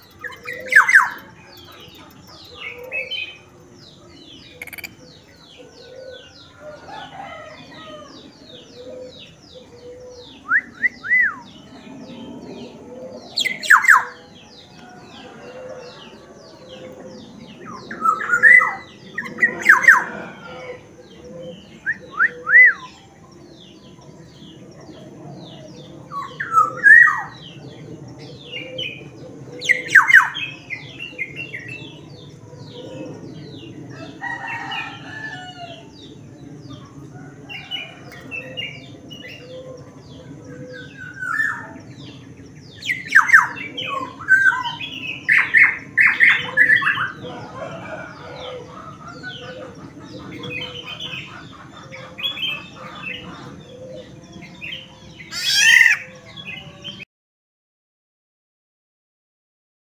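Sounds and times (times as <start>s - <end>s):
bird chattering calls: 4.5s - 5.3s, 55.3s - 56.1s.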